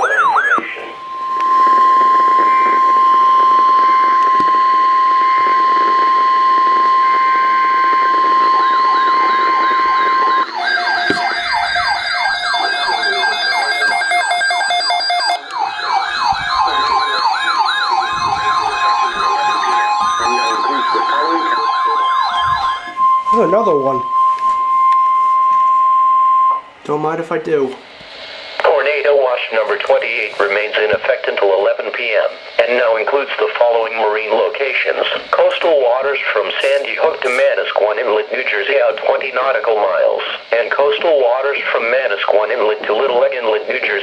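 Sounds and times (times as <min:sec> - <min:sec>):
warbling siren alarms: 0:00.0 - 0:26.8
steady warning alarm tone: 0:00.0 - 0:44.0.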